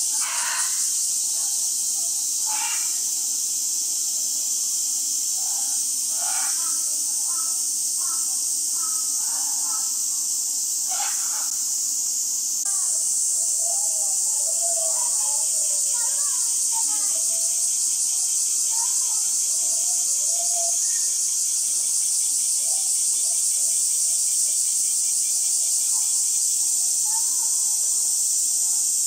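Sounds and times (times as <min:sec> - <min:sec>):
faint distant voices: 0:00.0 - 0:29.0
insects droning: 0:00.0 - 0:29.0.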